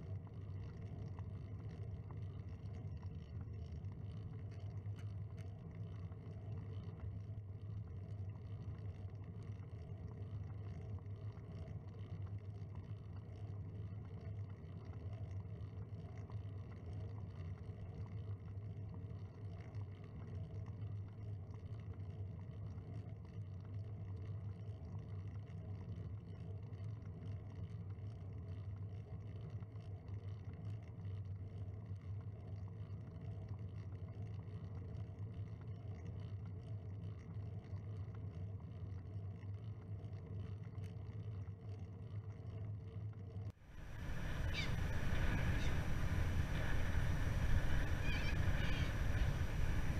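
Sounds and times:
bicycle road vibration: 40.0s - 49.9s
wind rumble: 43.7s - 49.9s.

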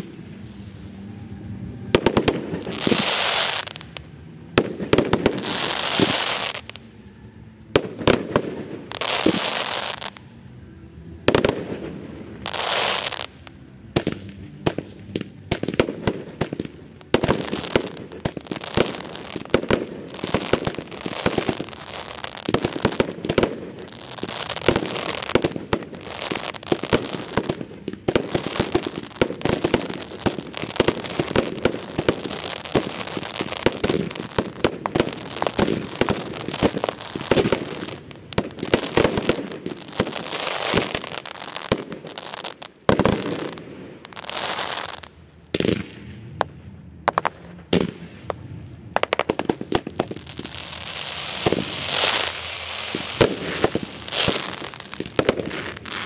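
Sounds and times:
firework bangs and cracks: 0.0s - 6.8s, 7.7s - 10.2s, 11.3s - 56.0s
firework fountains hissing: 0.0s - 7.1s, 16.2s - 45.2s, 49.5s - 56.0s.

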